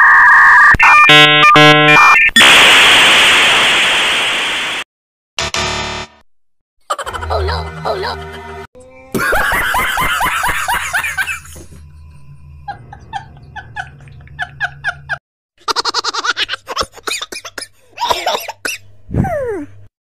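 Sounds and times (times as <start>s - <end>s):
man laughing hard: 9.1s - 11.6s, 12.7s - 17.2s.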